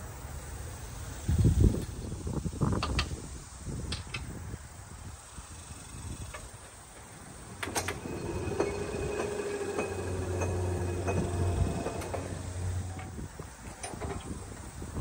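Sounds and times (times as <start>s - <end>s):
crossing gate clunk: 6.3s - 14.7s
motor and gearing humming: 7.4s - 14.6s.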